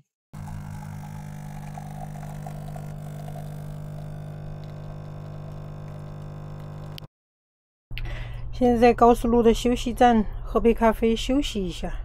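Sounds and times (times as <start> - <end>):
coffee machine pump humming: 0.4 - 7.1.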